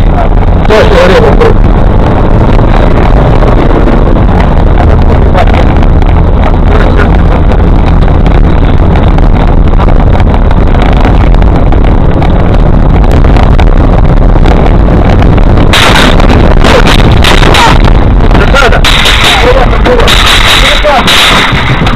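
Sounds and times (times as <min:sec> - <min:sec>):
vehicle rumble on rough road: 0:00.0 - 0:21.9
sharp rattles and knocks: 0:15.7 - 0:21.9.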